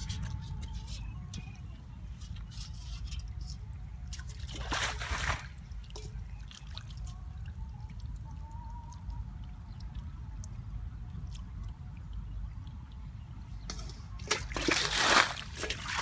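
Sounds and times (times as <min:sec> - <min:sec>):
water dripping and trickling: 0:00.0 - 0:16.0
feet wading through water: 0:04.0 - 0:13.3, 0:14.2 - 0:16.0
loud splash: 0:04.5 - 0:05.5, 0:14.3 - 0:16.0.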